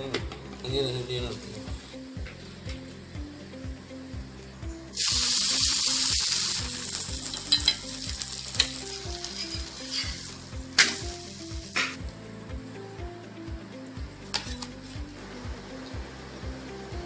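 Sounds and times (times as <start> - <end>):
flatbread sizzling on hot pan: 4.9 - 12.0.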